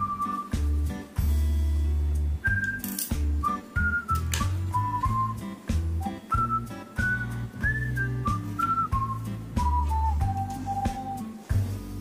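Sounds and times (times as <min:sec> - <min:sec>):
whistled tune: 0:00.0 - 0:01.0, 0:02.4 - 0:11.7
pulsing bass beat: 0:03.2 - 0:12.0.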